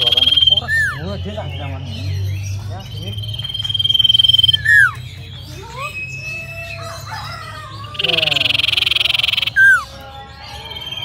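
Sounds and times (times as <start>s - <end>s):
bird chirps: 0.0s - 11.0s
bird high whistle: 3.5s - 5.0s.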